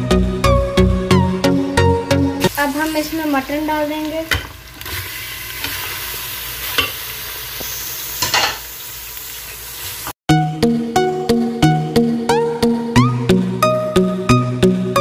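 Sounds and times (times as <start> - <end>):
background music: 0.0 - 2.6, 10.3 - 15.0
meat sizzling in oil: 2.4 - 10.2.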